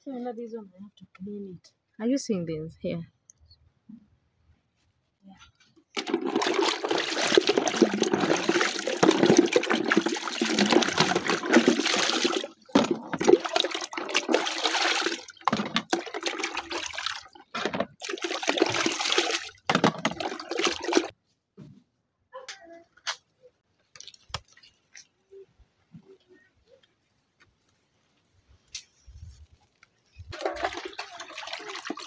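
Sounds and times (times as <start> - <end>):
water sloshing in a plastic bucket: 5.9 - 21.1, 23.9 - 25.1, 30.3 - 32.0.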